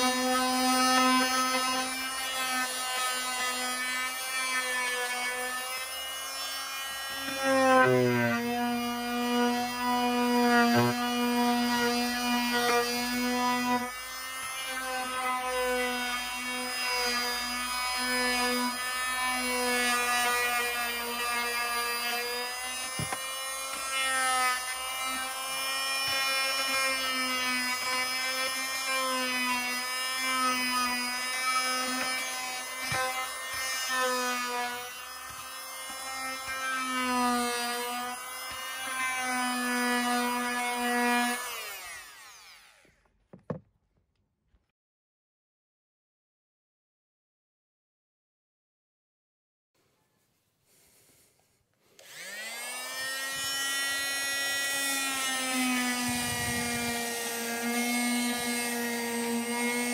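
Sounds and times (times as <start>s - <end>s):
sandpaper rasping on wood: 0.0s - 14.0s, 17.1s - 41.8s, 53.2s - 59.9s
sander motor whine: 0.0s - 43.0s, 52.0s - 59.9s.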